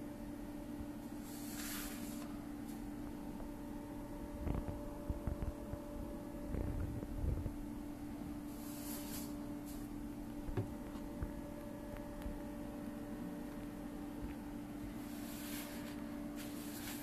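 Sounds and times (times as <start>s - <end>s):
steady low hum: 0.0s - 17.0s
hand brushing over paper: 1.2s - 2.9s, 8.5s - 9.9s, 15.0s - 17.0s.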